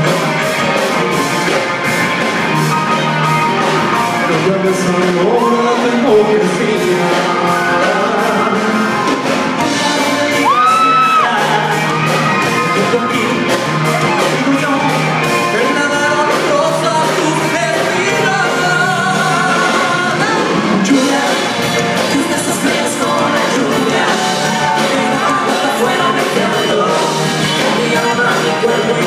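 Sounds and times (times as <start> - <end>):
electric guitar: 0.0 - 29.0
steady drum beat: 0.0 - 29.0
men singing into microphones: 4.3 - 29.0
high held cry: 10.4 - 11.6.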